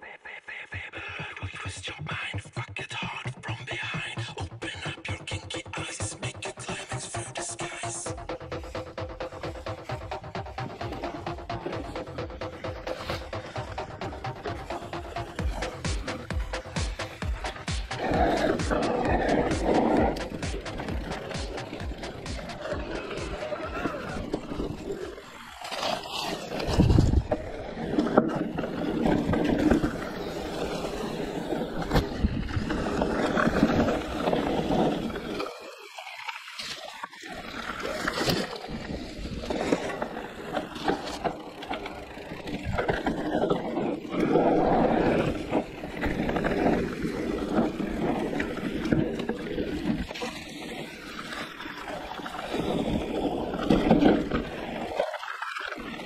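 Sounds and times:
bike knocking and rattling: 8.3s - 25.6s, 38.1s - 54.9s
tyre and wind noise: 8.7s - 35.4s, 37.6s - 55.0s.

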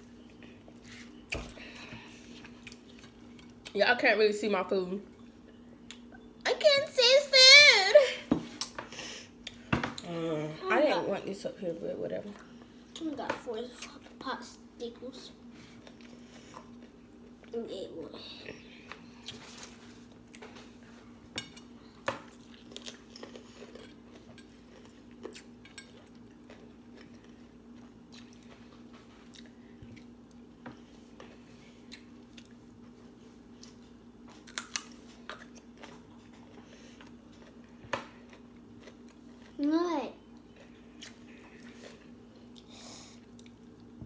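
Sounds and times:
food being chewed: 0.0s - 3.8s, 15.6s - 17.6s, 18.4s - 39.6s, 40.2s - 44.0s
faint low hum: 0.0s - 44.0s.

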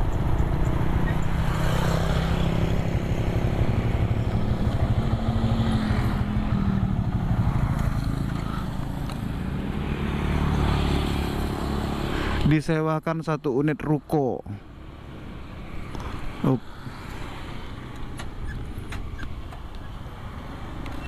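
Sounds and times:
motorcycle engine running: 0.0s - 11.9s.

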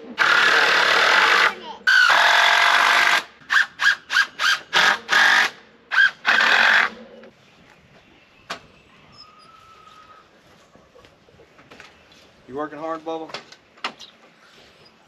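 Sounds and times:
power drill driving a screw: 0.2s - 7.0s.

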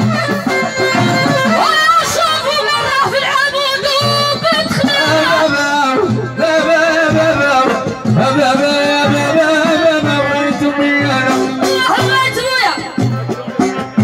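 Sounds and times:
hand drum strokes: 0.0s - 1.7s
violin ornamented melody: 0.0s - 2.0s.

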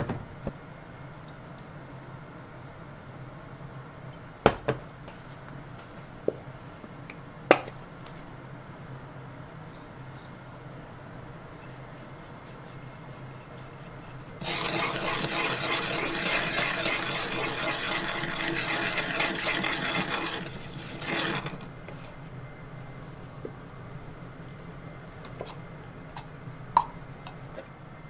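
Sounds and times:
metal spoon scraping in bowl: 11.6s - 22.2s.

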